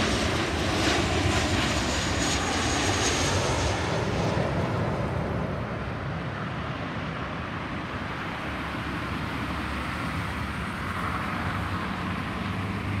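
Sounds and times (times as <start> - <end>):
distant jet engine roar: 0.0 - 13.0
road traffic noise: 6.4 - 13.0.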